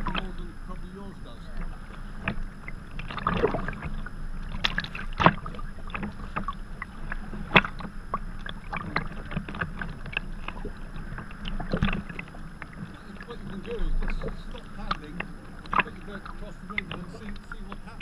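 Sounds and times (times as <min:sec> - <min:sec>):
paddle splashes and drips: 0:00.0 - 0:18.0
small waves slapping a hull: 0:00.0 - 0:18.0.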